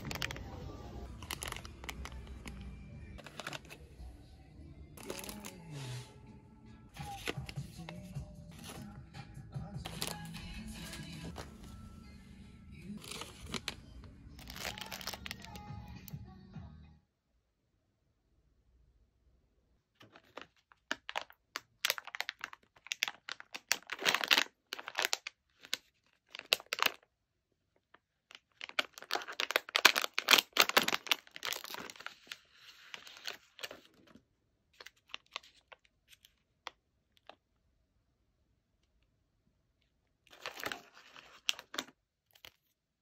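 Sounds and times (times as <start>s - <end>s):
snack packaging crinkling and tearing: 0.0s - 3.8s, 5.0s - 5.7s, 9.8s - 11.4s, 13.0s - 15.7s, 20.0s - 27.1s, 27.8s - 34.2s, 34.8s - 37.4s, 40.3s - 42.8s.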